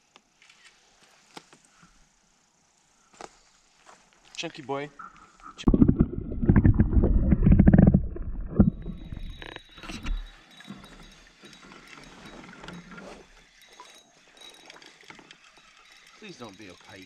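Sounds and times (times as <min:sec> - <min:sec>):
underwater sloshing and bubbling: 0:05.0 - 0:13.4.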